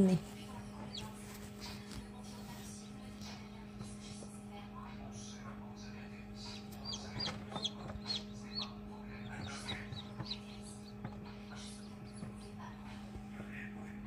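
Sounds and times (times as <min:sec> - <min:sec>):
incubator humming: 0:00.0 - 0:14.0
chick peeping: 0:00.8 - 0:01.4, 0:06.4 - 0:12.8.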